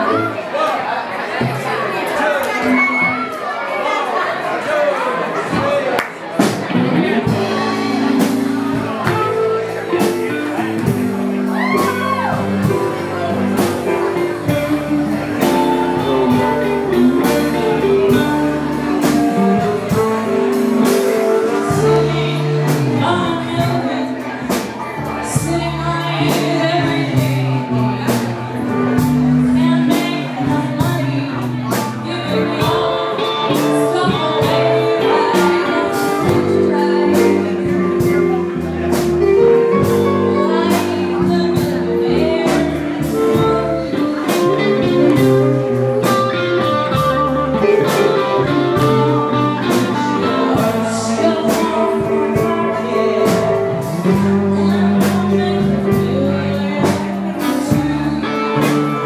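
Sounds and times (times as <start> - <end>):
blues band playing: 0.0 - 59.0
woman singing: 14.1 - 59.0.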